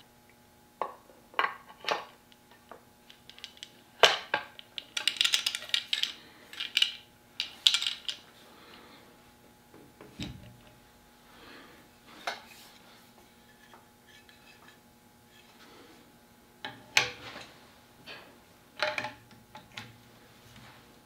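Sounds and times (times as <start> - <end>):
shotgun parts clicking and clacking: 4.8 - 8.2.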